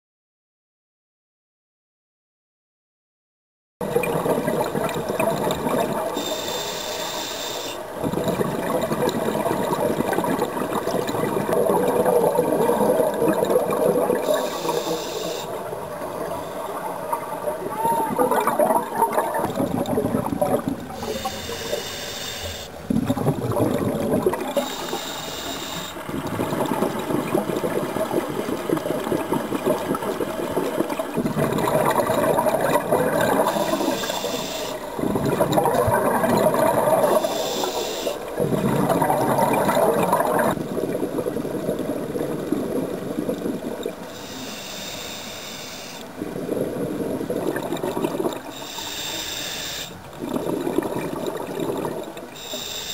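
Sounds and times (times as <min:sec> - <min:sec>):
exhaled bubbles gushing: 0:03.8 - 0:06.3, 0:07.9 - 0:21.6, 0:22.6 - 0:25.1, 0:25.9 - 0:44.1, 0:46.1 - 0:48.8, 0:49.9 - 0:52.4
regulator inhale hiss: 0:06.2 - 0:07.9, 0:14.3 - 0:15.6, 0:20.9 - 0:22.8, 0:24.6 - 0:26.0, 0:33.4 - 0:34.9, 0:37.1 - 0:38.2, 0:44.1 - 0:46.1, 0:48.5 - 0:50.0, 0:52.4 - 0:52.9.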